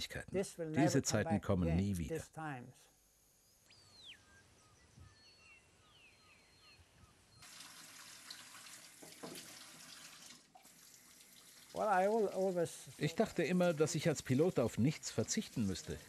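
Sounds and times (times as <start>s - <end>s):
faint birds chirping: 0.1s - 7.5s
tap water running into sink: 7.4s - 16.0s.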